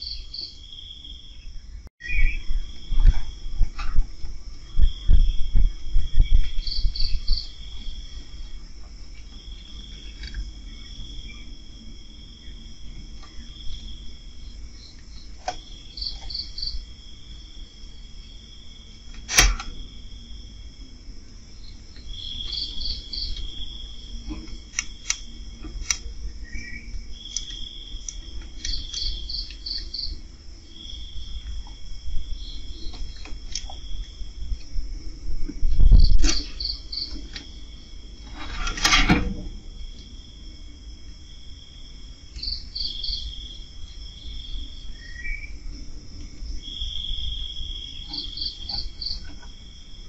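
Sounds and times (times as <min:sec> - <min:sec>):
crickets trilling: 0:00.0 - 0:50.0
quick cricket chirps: 0:00.0 - 0:50.0
sharp click: 0:19.2 - 0:19.8, 0:24.7 - 0:26.0.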